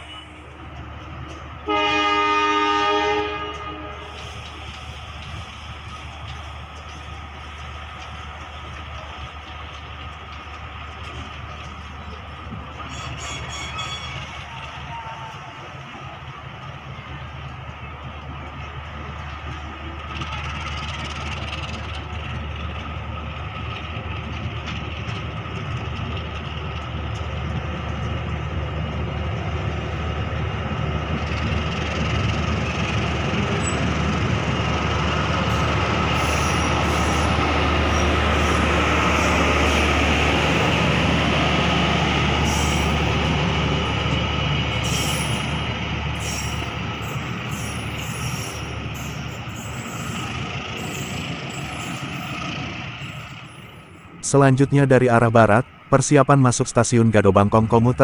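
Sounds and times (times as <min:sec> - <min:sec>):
train wheels rolling on rails: 0:00.0 - 0:01.9, 0:03.1 - 0:56.3.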